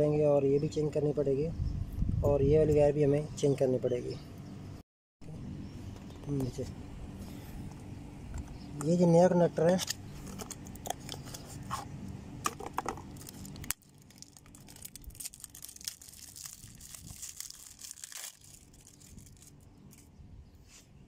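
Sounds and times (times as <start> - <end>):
packaging crinkling and tearing: 12.8 - 20.1.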